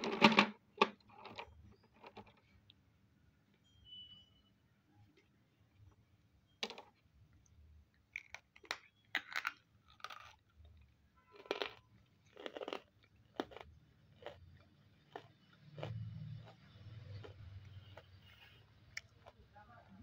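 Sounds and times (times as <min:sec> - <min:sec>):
crisp chewing crunches: 0:08.2 - 0:20.0.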